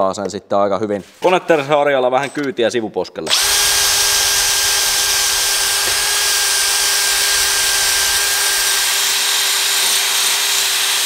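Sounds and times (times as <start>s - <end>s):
cordless drill motor whine: 3.3s - 11.0s.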